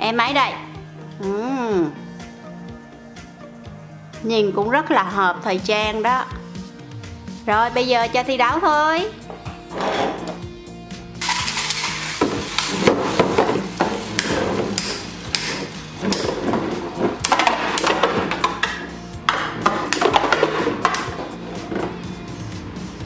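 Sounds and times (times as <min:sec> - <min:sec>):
spinning tops clacking: 0:11.2 - 0:12.8.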